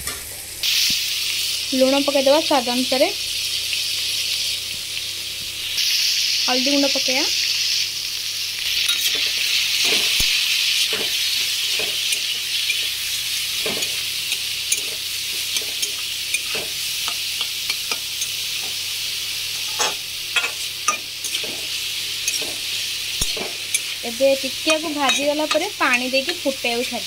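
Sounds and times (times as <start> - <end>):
vegetables sizzling in hot oil: 0.0 - 27.0
metal spatula scraping a pan: 19.6 - 24.0, 24.6 - 27.0.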